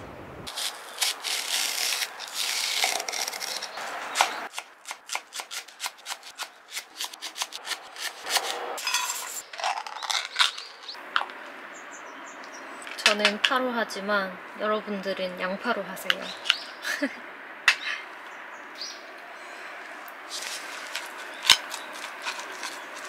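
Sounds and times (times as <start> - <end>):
knife slicing along onion: 0.5 - 8.6.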